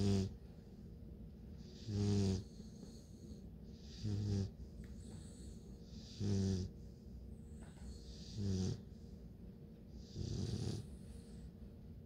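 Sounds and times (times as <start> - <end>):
puppy snoring: 0.0 - 0.4, 1.6 - 6.8, 7.4 - 9.0, 9.9 - 11.5.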